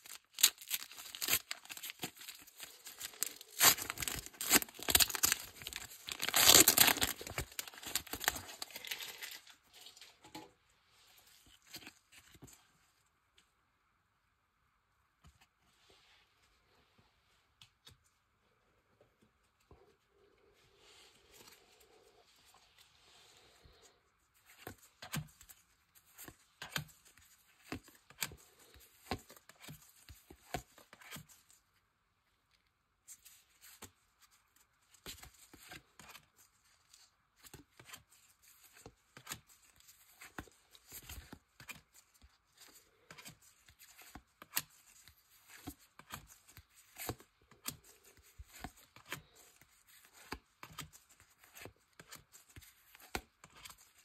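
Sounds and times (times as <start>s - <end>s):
foil wrappers rustling: 0.0s - 9.6s
cards clicking and sliding: 40.0s - 54.0s.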